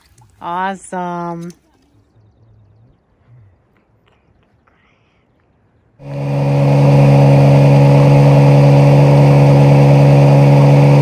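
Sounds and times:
outboard motor running: 0:06.0 - 0:11.0.

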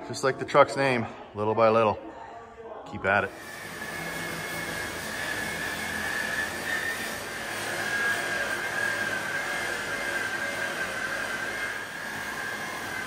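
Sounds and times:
polisher wheel grinding metal: 0:03.2 - 0:13.0.

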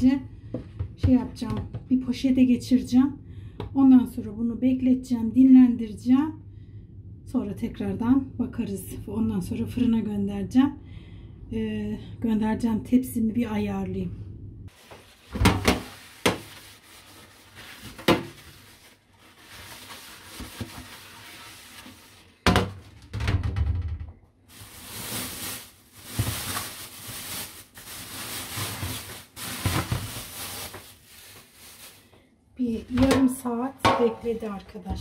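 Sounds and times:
rustling and scraping: 0:14.7 - 0:23.0, 0:24.5 - 0:32.0.

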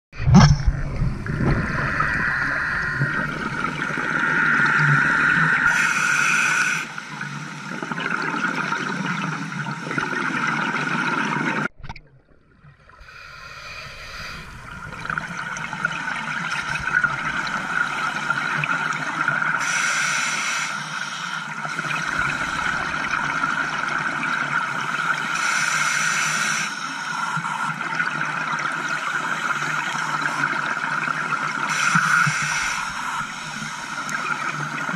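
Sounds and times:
exhaled bubbles bursting: 0:00.2 - 0:05.8
underwater hissing gurgling wash: 0:00.9 - 0:10.2, 0:13.0 - 0:27.4, 0:31.1 - 0:34.9.

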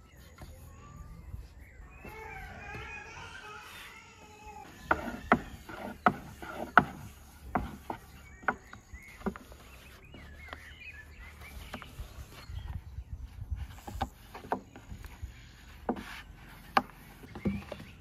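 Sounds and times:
rolling pin knocking on wooden board: 0:04.8 - 0:09.5.

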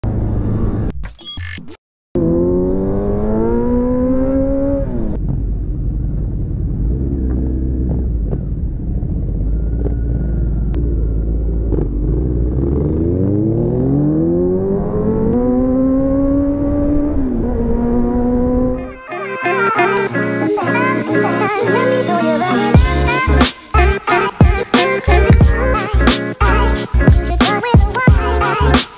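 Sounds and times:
motorcycle engine revving: 0:02.2 - 0:18.9.

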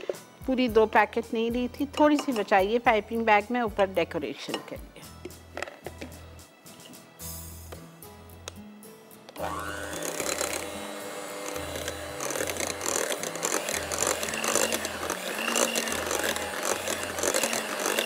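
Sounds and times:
background music with low beat: 0:00.1 - 0:09.4
electric hand mixer whipping: 0:09.4 - 0:18.0.

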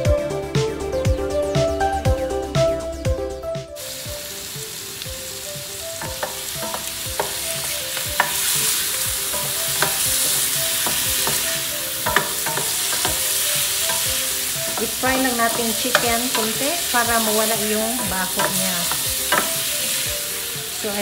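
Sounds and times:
food sizzling in hot oil: 0:03.8 - 0:21.0
wooden spoon clicking on pan: 0:06.0 - 0:08.6, 0:09.3 - 0:19.7.

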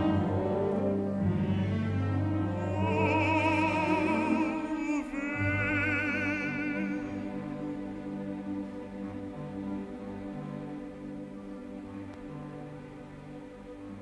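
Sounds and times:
orchestra strings: 0:00.0 - 0:14.0
operatic baritone singing: 0:01.5 - 0:07.9.

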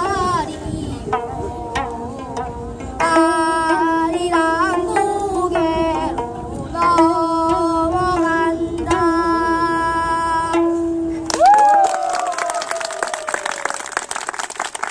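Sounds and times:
girl singing: 0:00.0 - 0:11.2
people clapping: 0:11.2 - 0:14.9.

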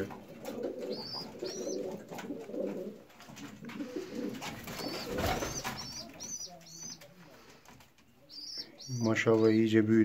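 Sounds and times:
pigeons cooing: 0:00.0 - 0:07.1.

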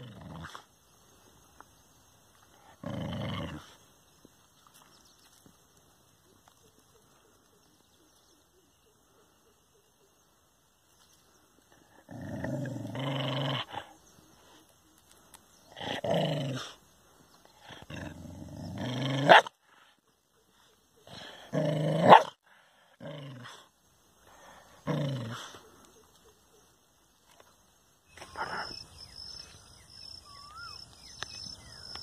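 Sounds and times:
dog growling: 0:02.6 - 0:03.8, 0:11.8 - 0:14.0, 0:15.7 - 0:16.8, 0:17.6 - 0:19.5, 0:21.0 - 0:22.3, 0:24.6 - 0:25.6
dog barking: 0:19.2 - 0:19.5, 0:22.0 - 0:22.4.

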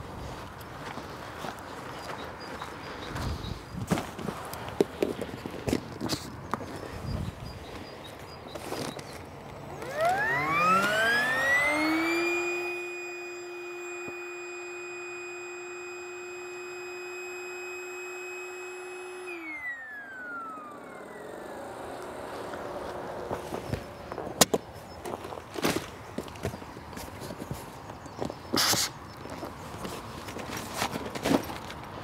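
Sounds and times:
electric air pump motor whine: 0:08.6 - 0:31.0.

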